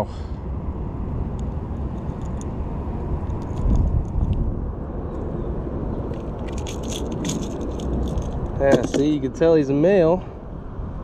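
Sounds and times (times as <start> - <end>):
wind buffeting microphone: 0.7 - 11.0
metallic clicks and rattles: 6.1 - 9.1.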